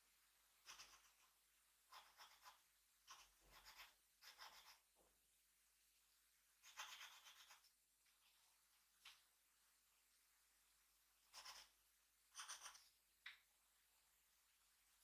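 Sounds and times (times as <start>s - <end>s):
drawing tool scratching paper: 0.6s - 4.9s, 6.6s - 7.8s, 11.2s - 12.9s.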